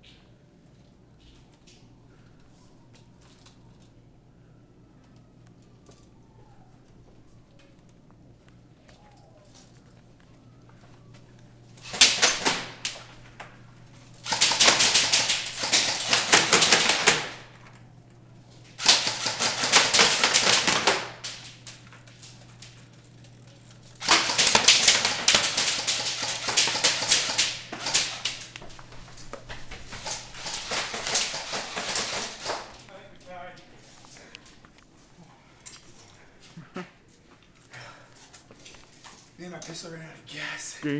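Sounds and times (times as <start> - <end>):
airsoft guns firing full auto: 11.8 - 13.0, 14.2 - 17.6, 18.8 - 21.6, 24.0 - 28.5, 30.0 - 32.8.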